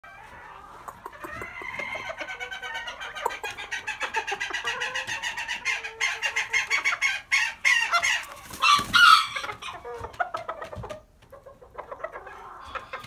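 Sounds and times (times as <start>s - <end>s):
rooster clucking rapidly: 0.6s - 10.9s.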